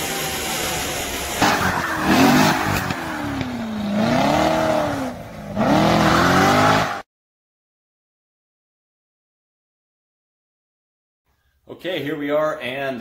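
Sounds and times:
tyres spinning on road: 0.0 - 7.0
car engine revving: 0.0 - 7.1.

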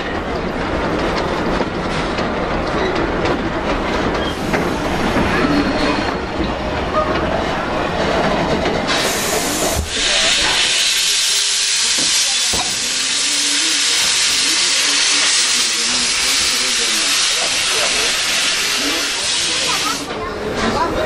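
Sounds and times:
railway coaches rumbling past: 0.0 - 21.0
steam hissing: 8.8 - 20.1.

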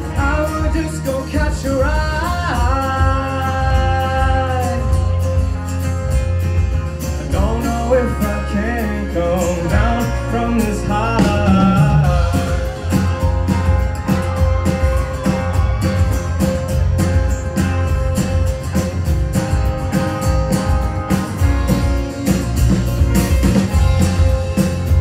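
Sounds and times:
acoustic guitar: 0.0 - 25.0
bass guitar: 0.0 - 25.0
drum kit beat: 0.0 - 25.0
electric guitar: 0.0 - 25.0.

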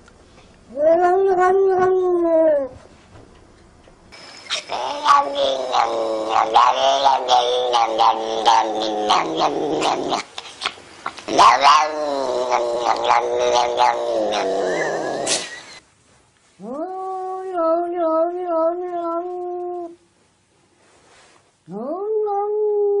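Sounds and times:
cat yowling: 0.7 - 2.7, 4.5 - 10.2, 11.3 - 15.7, 16.6 - 20.0, 21.7 - 23.0
cat wavering meow: 0.7 - 2.8, 4.5 - 10.2, 11.3 - 15.3, 16.6 - 20.0, 21.7 - 23.0.

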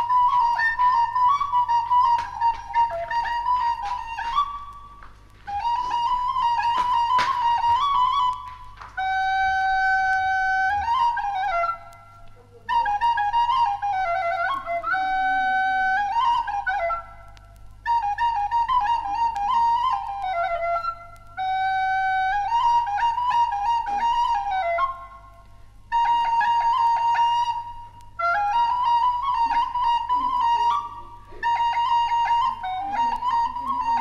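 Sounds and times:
flute melody: 0.0 - 34.0
steady low hum: 24.3 - 26.3.

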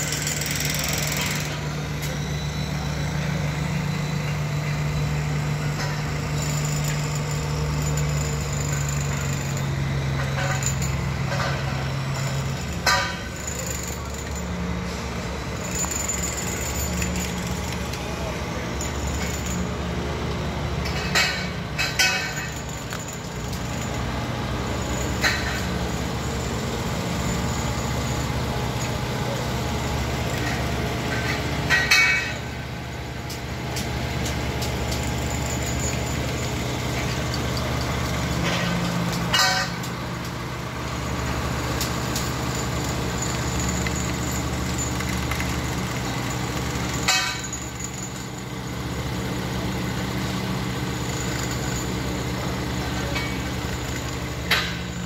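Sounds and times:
heavy machinery running: 0.0 - 55.0
metallic clanks and knocks: 10.1 - 13.6, 20.8 - 23.8, 25.0 - 25.9, 30.3 - 32.5, 33.3 - 40.4, 47.0 - 47.9, 54.4 - 55.0.

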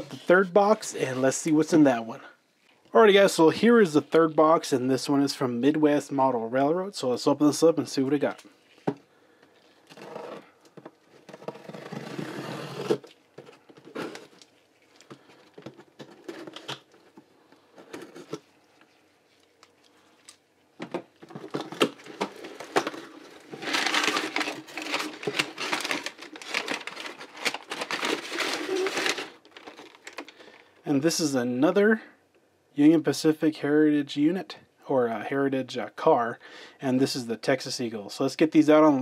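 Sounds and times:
packing tape peeling and tearing: 11.3 - 13.2, 21.7 - 30.3
knife scraping cardboard: 11.4 - 13.0
packing paper crinkling: 21.2 - 30.7.

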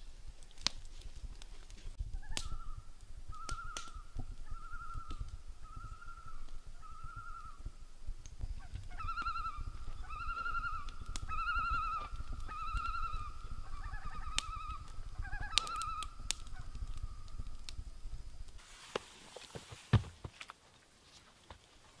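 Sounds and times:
loon tremolo calls: 2.2 - 7.8, 8.4 - 17.7
sharp clicks: 3.4 - 4.3.

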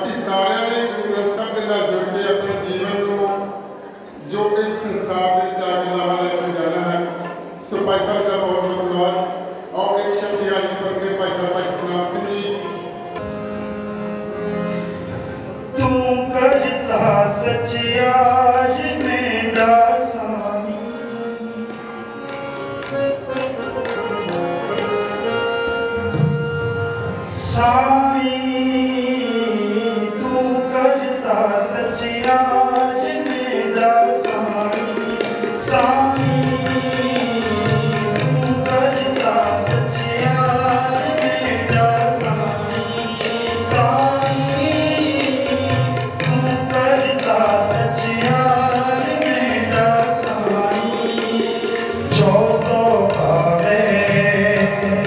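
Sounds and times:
man singing: 0.0 - 3.6, 15.7 - 22.3, 27.3 - 55.0
tabla drumming: 0.0 - 3.9, 9.6 - 55.0
harmonium melody: 0.0 - 55.0.

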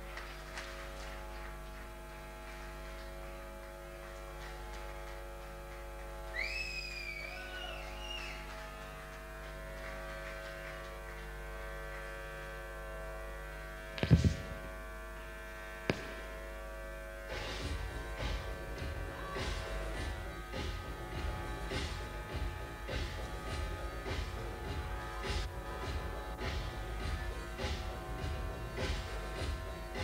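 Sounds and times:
amplifier hum and buzz: 0.0 - 30.0
wavering whistle: 6.3 - 8.6
loud thump: 14.0 - 14.7.

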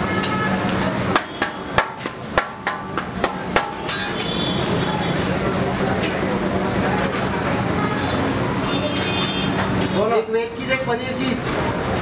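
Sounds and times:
kitchen utensils knocking: 1.1 - 4.4.

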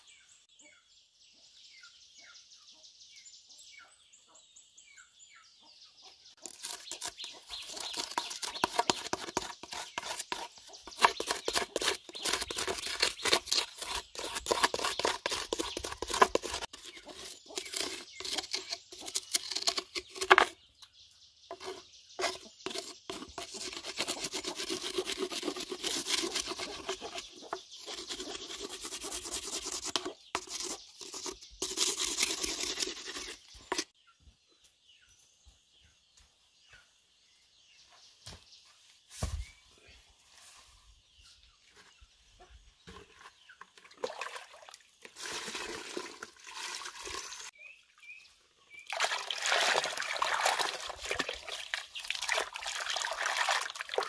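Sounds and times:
metal blade scraping wood: 6.4 - 20.6, 21.5 - 33.9.

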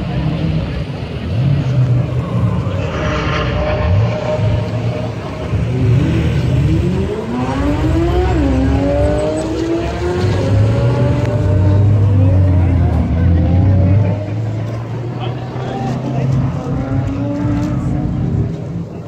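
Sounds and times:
car engine accelerating: 0.0 - 19.0.

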